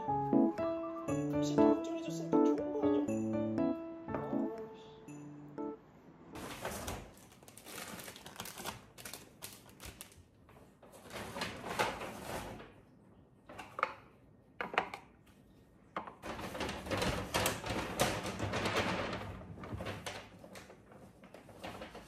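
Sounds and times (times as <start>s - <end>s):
paper bag and plastic rustling: 6.4s - 12.8s, 16.2s - 22.0s.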